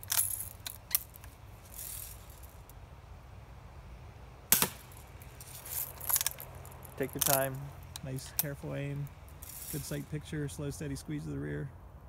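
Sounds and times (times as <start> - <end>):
spring-powered gun shot: 4.5 - 4.9.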